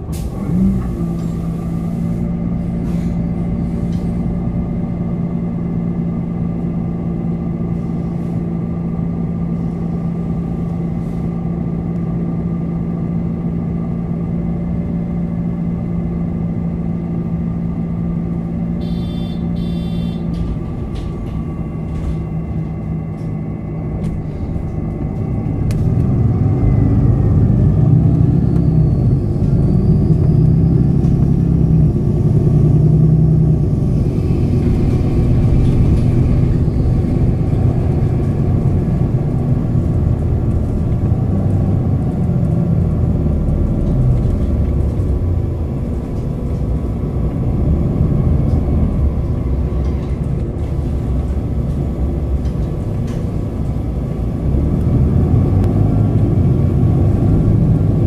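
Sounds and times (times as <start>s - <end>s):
bus diesel engine: 0.0s - 58.0s
high beeping: 18.8s - 20.3s.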